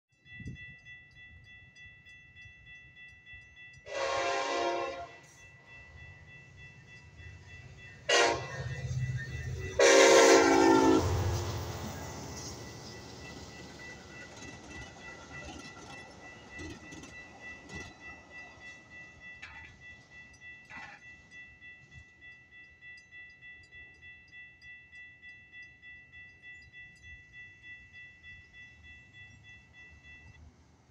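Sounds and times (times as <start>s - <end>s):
crossing warning bell ringing: 0.1s - 30.7s
train horn blast: 3.9s - 5.2s, 8.1s - 8.7s, 9.7s - 11.5s.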